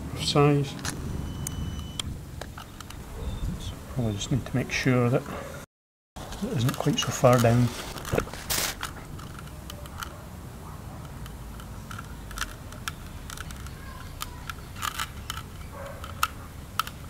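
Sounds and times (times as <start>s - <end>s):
low steady background noise: 0.0s - 5.6s, 6.2s - 17.0s
small plastic clicks and taps: 11.0s - 17.0s.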